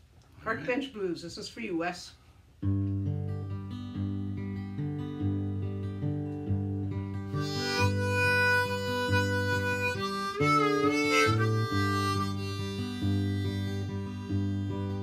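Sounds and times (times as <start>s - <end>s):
acoustic guitar blues: 2.6s - 15.0s
harmonica melody: 7.2s - 15.0s.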